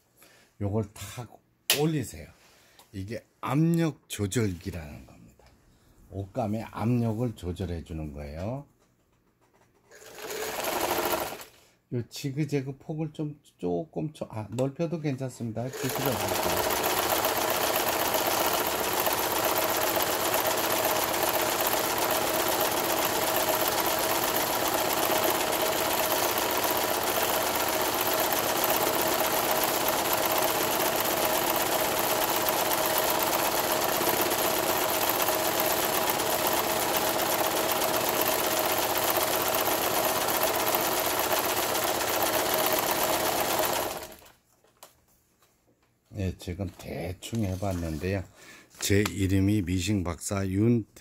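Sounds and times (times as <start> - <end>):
sewing machine running: 9.9 - 11.6, 15.6 - 44.3.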